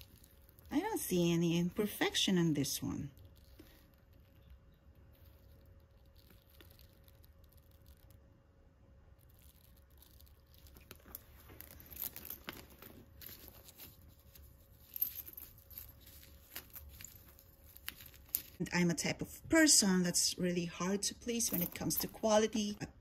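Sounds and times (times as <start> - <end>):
plastic sleeve crinkling: 0.0 - 8.2, 9.2 - 18.6.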